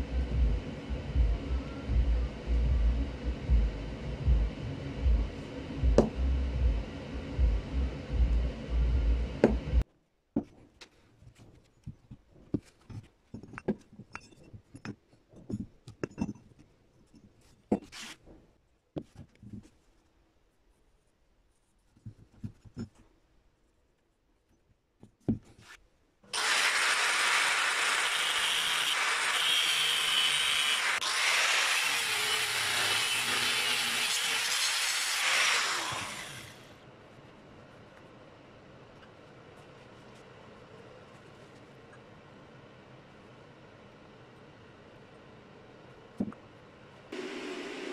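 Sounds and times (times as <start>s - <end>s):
loud low noise: 0.0s - 9.8s
angle grinder cutting metal: 26.4s - 36.7s.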